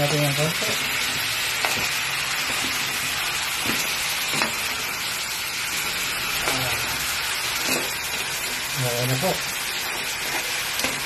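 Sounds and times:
crabs sizzling in a wok: 0.0 - 11.0.

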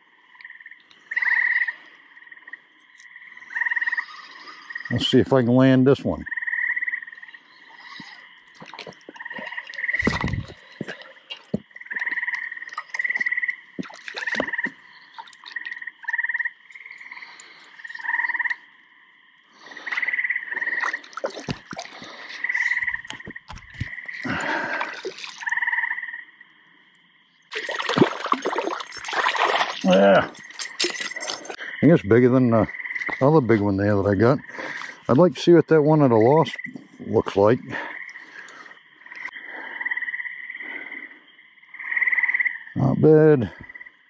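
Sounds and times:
frogs calling in chorus: 0.0 - 44.0
water splashes: 7.7 - 18.1, 19.6 - 25.7, 27.5 - 31.6.

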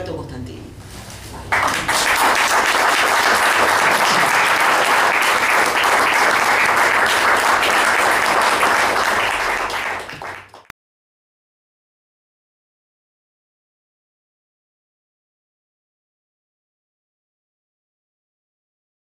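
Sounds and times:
audience applauding: 1.5 - 10.7.

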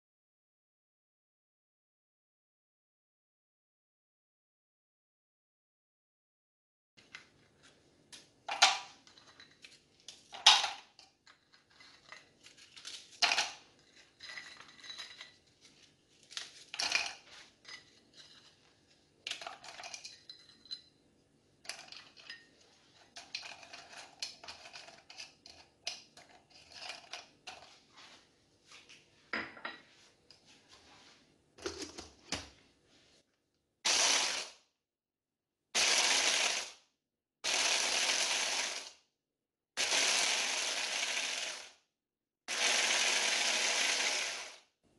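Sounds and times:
blender chopper grinding: 33.9 - 34.5, 35.8 - 36.7, 37.4 - 38.9, 39.8 - 41.8, 42.5 - 44.6.

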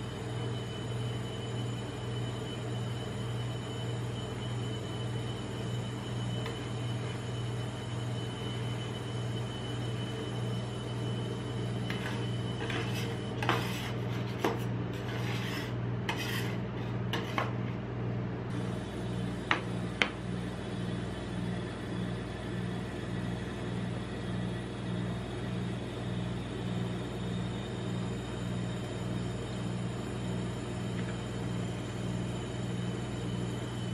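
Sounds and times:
steady low hum: 0.0 - 33.9
metal spatula scraping steel plate: 11.9 - 17.6.

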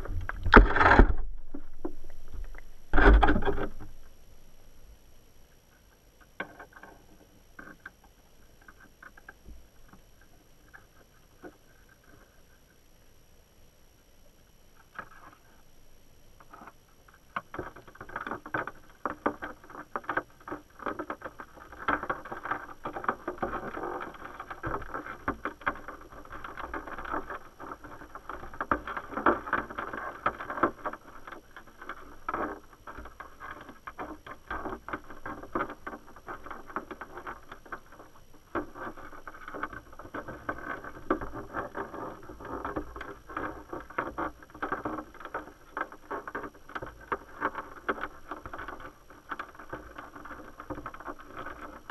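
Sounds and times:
underwater crackle of clicks: 0.0 - 4.2, 5.6 - 12.7.

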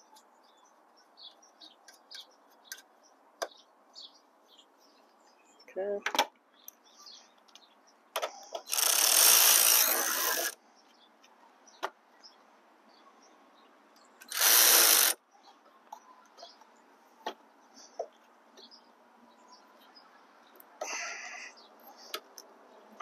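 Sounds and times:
electric ratchet running: 8.7 - 10.6, 14.2 - 15.2.

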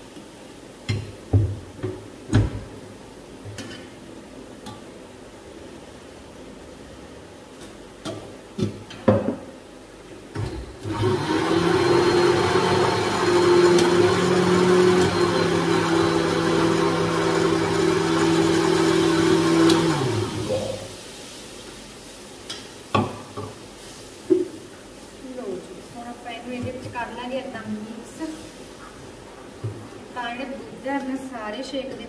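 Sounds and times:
mixer grinder motor whirring: 10.8 - 20.7.

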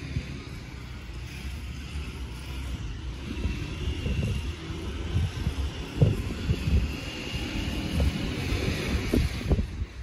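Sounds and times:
wind buffeting a microphone: 2.6 - 10.0.

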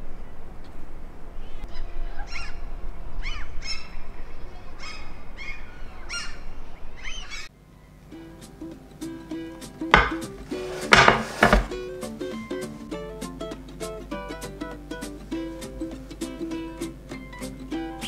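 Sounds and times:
bird calling: 1.7 - 4.1, 4.8 - 8.0
faint music: 7.5 - 18.0.

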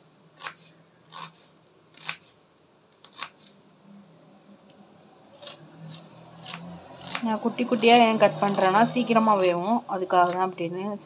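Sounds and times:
knife slicing onion: 0.4 - 2.4, 3.0 - 3.6, 5.4 - 10.6.

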